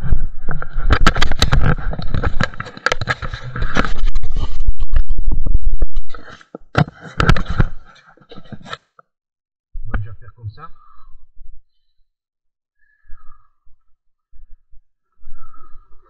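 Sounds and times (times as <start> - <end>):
scraping and rubbing on camera: 0.0 - 9.0.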